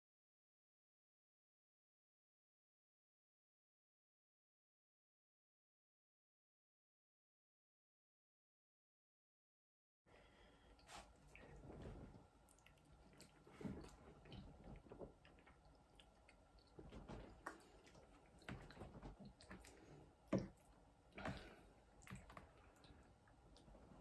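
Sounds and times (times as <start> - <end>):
person chewing food: 10.5 - 24.0.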